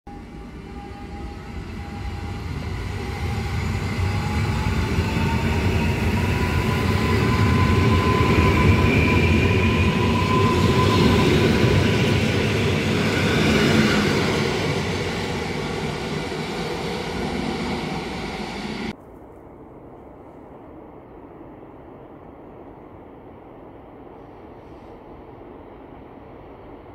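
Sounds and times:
train wheels rumbling on rails: 0:00.1 - 0:19.0
faint outdoor background: 0:00.1 - 0:26.9.

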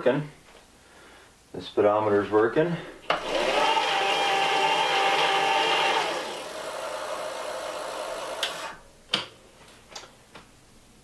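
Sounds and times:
electric bike motor whining: 0:03.1 - 0:08.8.

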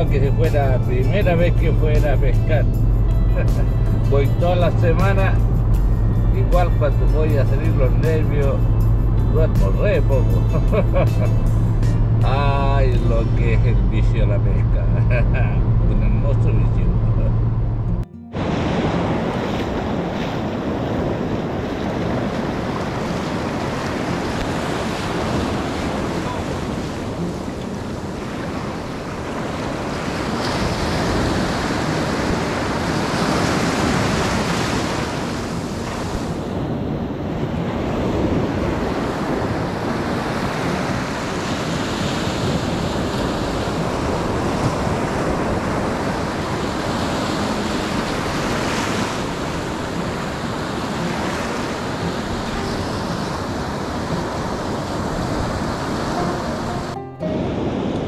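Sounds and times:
ocean surf breaking: 0:00.0 - 0:16.9, 0:18.3 - 0:58.0
wind buffeting microphone: 0:17.0 - 0:58.0.

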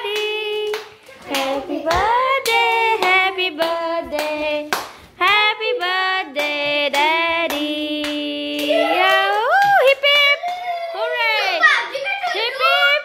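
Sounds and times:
voices singing together: 0:00.0 - 0:09.6
hands clapping: 0:00.1 - 0:10.7.

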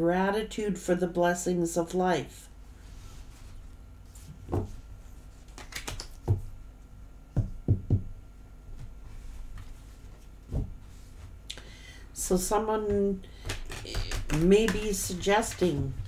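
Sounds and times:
cards tapping on tabletop: 0:13.4 - 0:15.8.

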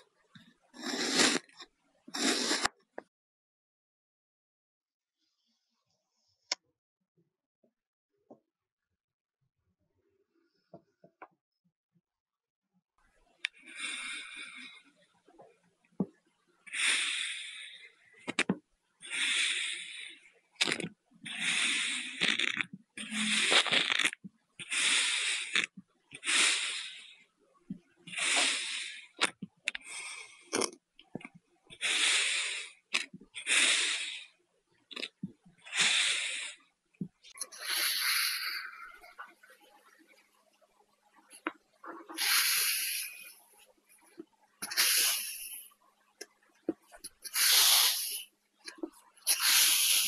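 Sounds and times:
knife slicing kinetic sand: 0:00.8 - 0:02.7.

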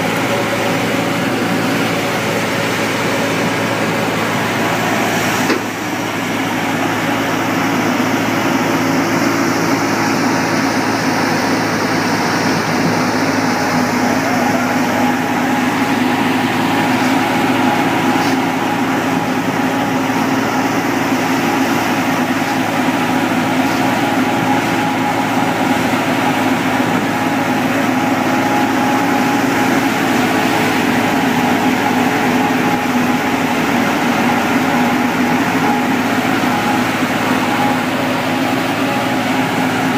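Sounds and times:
thresher mechanical hum: 0:00.0 - 0:39.9.

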